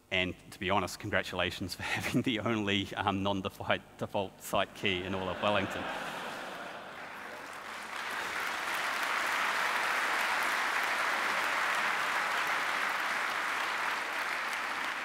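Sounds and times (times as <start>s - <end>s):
audience applauding: 6.3s - 15.0s.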